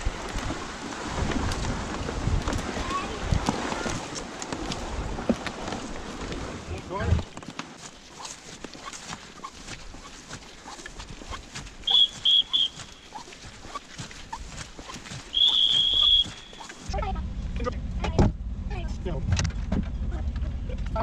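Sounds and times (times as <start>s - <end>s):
footsteps through dry grass: 7.2s - 16.9s
high whistle blowing: 11.8s - 13.1s, 15.3s - 16.9s.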